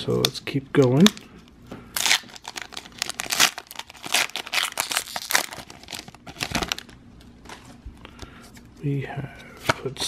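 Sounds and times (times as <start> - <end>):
foil wrapper crinkling: 2.0 - 7.0.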